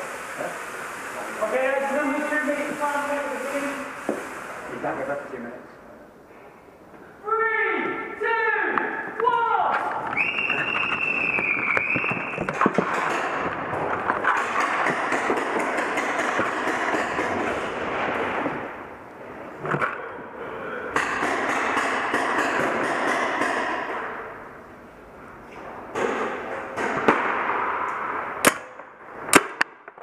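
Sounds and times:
rapid paintball fire: 10.7 - 18.5, 26.8 - 30.0.

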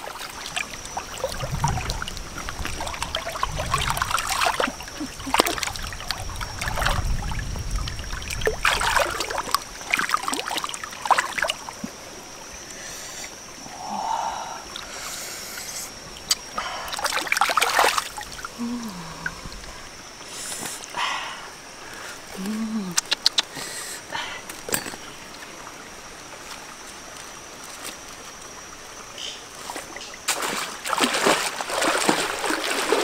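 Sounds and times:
water splashing and trickling: 0.0 - 21.0, 21.6 - 33.0.

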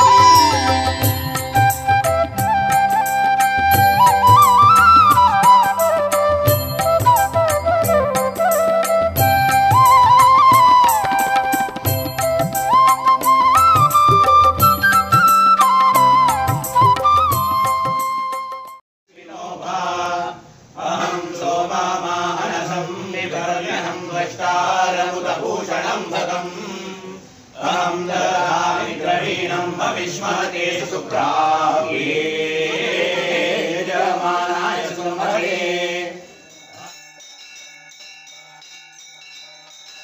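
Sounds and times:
voices chanting: 19.1 - 36.9.

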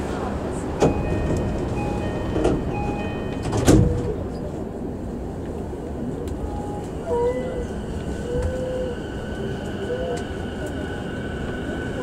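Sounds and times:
stopped train humming: 0.0 - 12.0
train door closing chime: 0.8 - 4.3
sliding doors shutting with thump: 2.2 - 4.2.

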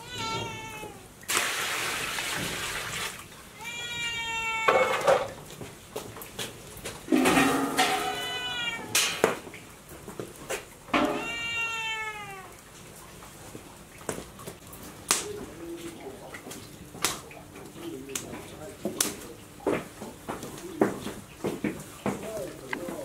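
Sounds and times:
cat meowing: 0.0 - 1.2, 3.6 - 5.4, 7.7 - 9.3, 11.0 - 12.6
firewood clattering: 4.8 - 11.4
wok lid knocks: 7.1 - 8.3.

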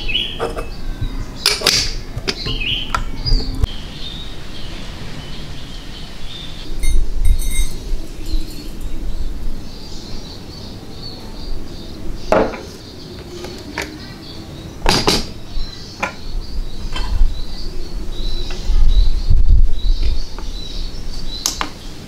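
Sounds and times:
birds chirping: 0.0 - 22.0
metal clinks and knocks: 6.8 - 8.8.

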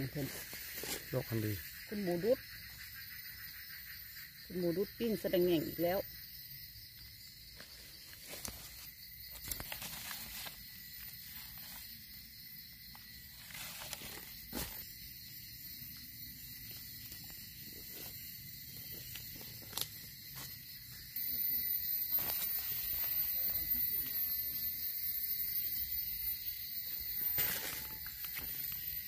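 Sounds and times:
dry leaves and twigs rustling: 0.0 - 1.9, 7.3 - 15.4, 16.5 - 29.0
forest insects droning: 0.0 - 29.0
loud high insect buzz: 0.0 - 29.0.

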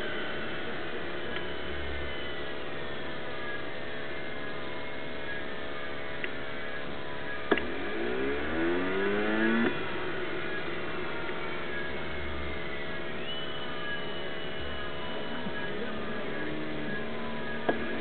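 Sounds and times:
steady mechanical hum: 0.0 - 18.0.

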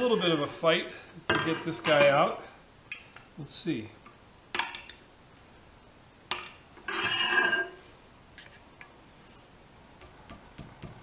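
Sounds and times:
metallic scrape with ringing squeal: 6.9 - 7.9.

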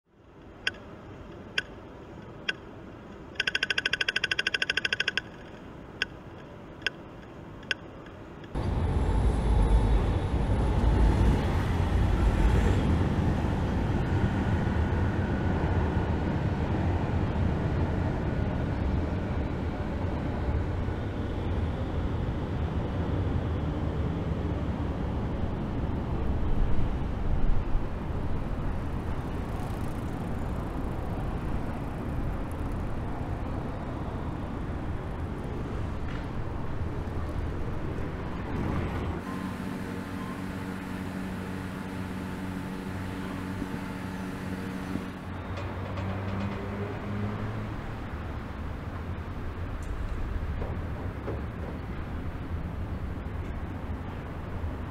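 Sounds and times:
road traffic rumble: 0.1 - 54.9
sharp clicks: 0.4 - 8.6.

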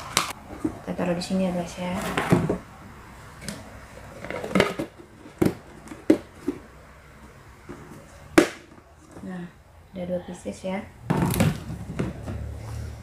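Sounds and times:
plastic containers clattering: 1.9 - 2.7, 3.4 - 6.8, 11.0 - 12.6.

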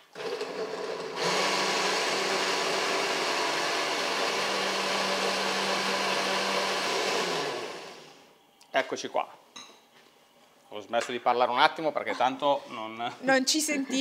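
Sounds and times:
blender whirring: 0.0 - 8.3.

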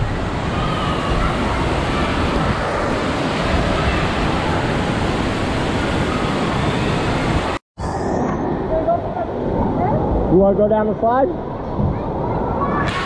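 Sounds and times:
spraying and falling water: 0.0 - 7.6.

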